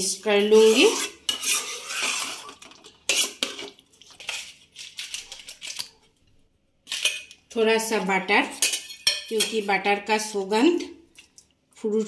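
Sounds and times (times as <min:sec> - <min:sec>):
metal spoon scraping frying pan: 0:00.4 - 0:05.8.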